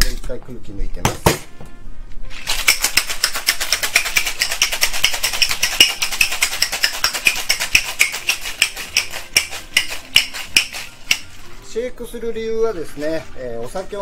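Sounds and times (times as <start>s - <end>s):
ice rattling in cocktail shaker: 2.3s - 11.5s, 12.6s - 14.0s.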